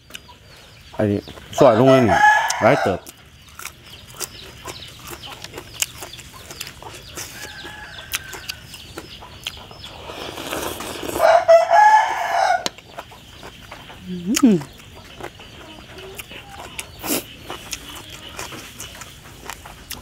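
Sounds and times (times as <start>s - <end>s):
rooster crowing: 1.8s - 3.1s, 7.2s - 8.8s, 11.2s - 12.8s.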